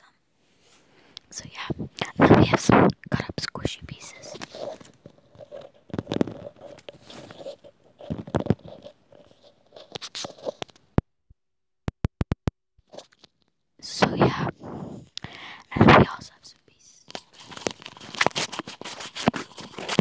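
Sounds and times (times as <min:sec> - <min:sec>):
rustling: 0:00.4 - 0:10.8, 0:17.0 - 0:20.0
earbud scratching on microphone: 0:01.4 - 0:10.8, 0:13.9 - 0:16.3.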